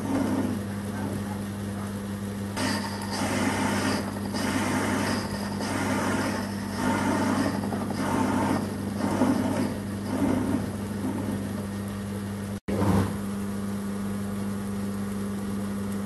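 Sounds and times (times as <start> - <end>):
lathe cutting metal: 0.0 - 1.2, 2.6 - 11.9
lathe motor hum: 0.0 - 13.1.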